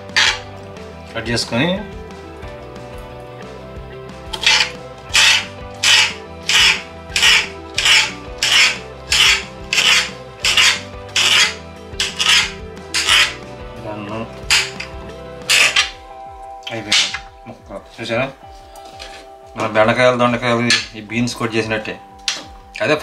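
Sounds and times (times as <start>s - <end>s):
background music: 0.0s - 23.0s
knife slicing cactus: 4.4s - 13.4s.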